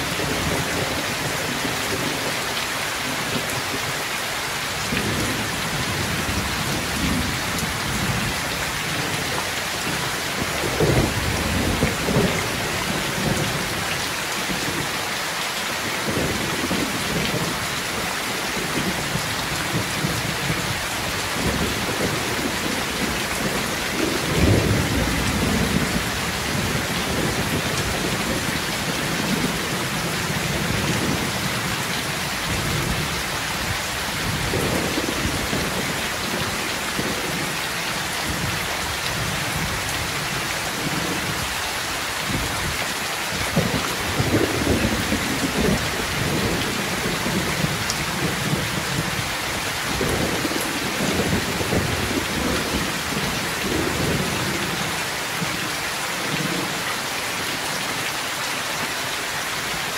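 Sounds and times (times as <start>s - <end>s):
heavy rain: 0.0s - 59.9s
thunder rumbling: 9.9s - 13.8s.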